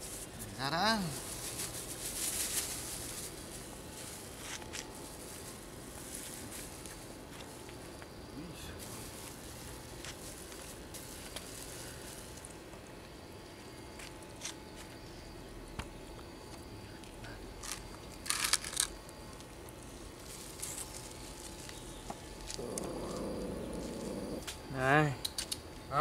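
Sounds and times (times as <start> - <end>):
plastic wrapper crinkling: 17.6 - 18.9
puppies crunching food: 17.6 - 19.8.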